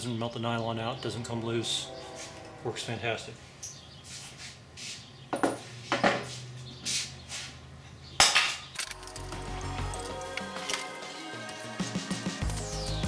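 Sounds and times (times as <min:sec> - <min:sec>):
metal tools clinking and rattling: 0:08.2 - 0:12.0
background music: 0:08.8 - 0:13.0.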